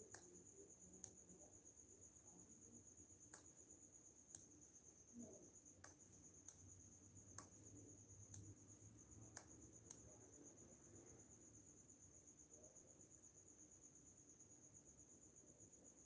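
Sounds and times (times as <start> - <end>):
soft clicks: 0.0 - 0.4, 1.0 - 1.3, 3.2 - 3.6, 4.3 - 4.5, 5.8 - 6.7, 7.3 - 8.6, 9.3 - 10.1
cricket trilling: 0.0 - 16.0.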